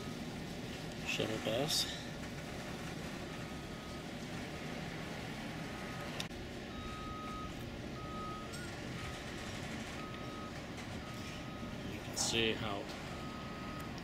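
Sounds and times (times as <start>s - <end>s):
reversing alarm beeping: 3.2s - 4.2s, 5.1s - 14.0s.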